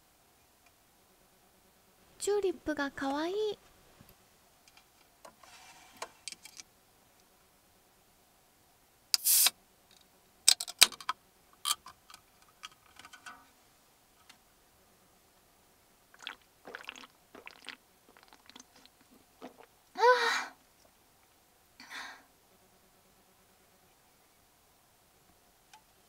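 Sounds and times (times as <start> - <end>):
can pop and hiss: 9.1 - 9.6
can tab clicks: 9.2 - 9.5.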